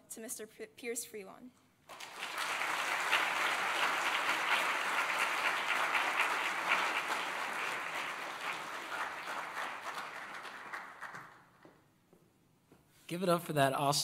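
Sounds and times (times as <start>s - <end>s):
audience applauding: 1.9s - 11.6s.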